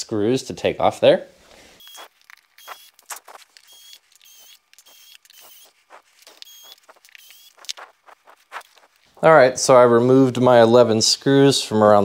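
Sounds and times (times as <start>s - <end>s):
small clicks: 1.8s - 8.6s
screws squeaking: 1.8s - 9.0s.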